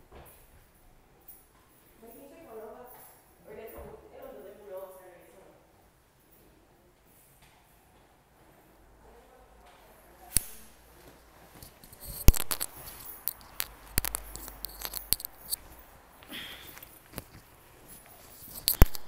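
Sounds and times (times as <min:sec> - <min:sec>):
phone handling rustling: 0:11.5 - 0:15.8, 0:16.6 - 0:19.0
sharp clicks and knocks: 0:11.6 - 0:15.8, 0:18.1 - 0:19.0.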